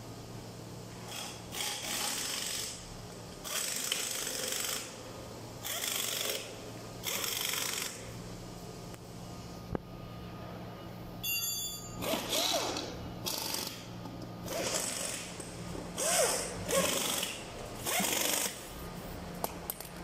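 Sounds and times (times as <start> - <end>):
steady electrical hum: 0.0 - 20.0
hissing rasping mechanical noise: 0.9 - 9.1, 12.0 - 19.0
high-pitched beep: 11.2 - 12.0.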